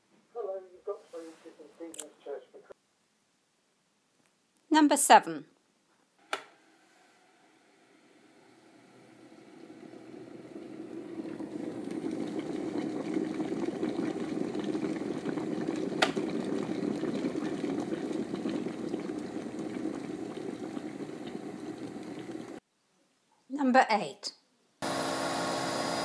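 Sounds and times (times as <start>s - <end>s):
kettle boiling: 6.3s - 22.6s, 24.8s - 26.0s.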